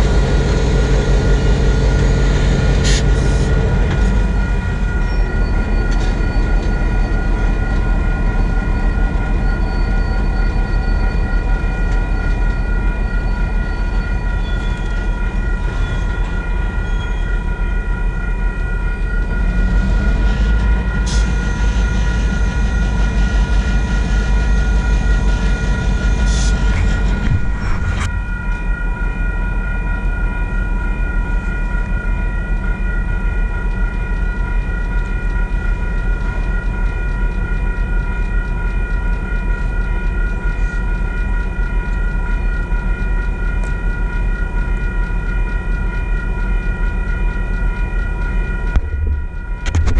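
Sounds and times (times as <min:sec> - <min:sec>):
crossing signal bell ringing: 0:00.0 - 0:49.9
diesel freight train rumbling: 0:00.0 - 0:49.9.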